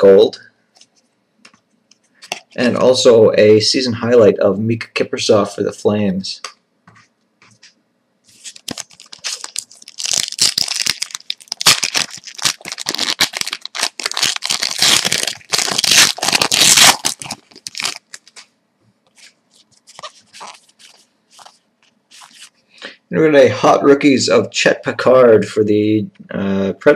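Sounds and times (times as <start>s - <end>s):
foil wrapper crackling: 8.4s - 18.4s, 19.8s - 21.6s.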